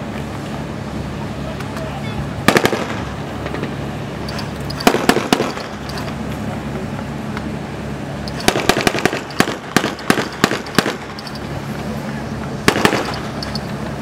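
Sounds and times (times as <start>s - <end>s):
boat engines humming: 0.0s - 14.0s
small-arms gunfire: 2.5s - 3.1s, 4.8s - 5.8s, 8.4s - 11.2s, 12.7s - 13.3s.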